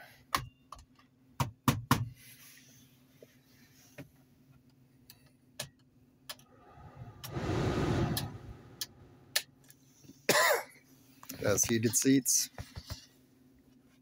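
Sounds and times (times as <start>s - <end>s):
heater blower fan rushing: 6.5s - 9.4s.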